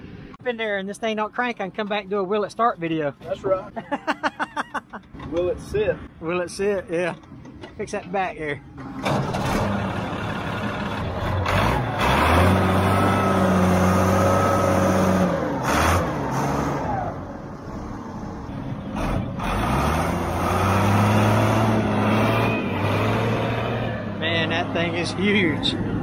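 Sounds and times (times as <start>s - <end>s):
diesel engine revving under load: 8.8s - 26.0s.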